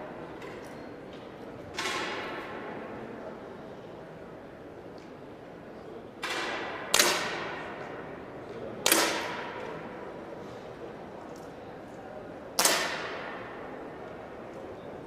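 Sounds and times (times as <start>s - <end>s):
air pistol shots echoing: 6.2s - 7.7s, 12.6s - 13.5s.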